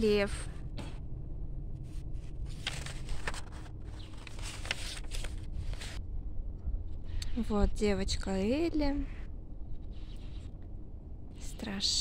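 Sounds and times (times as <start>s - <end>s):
low city rumble: 0.0s - 12.0s.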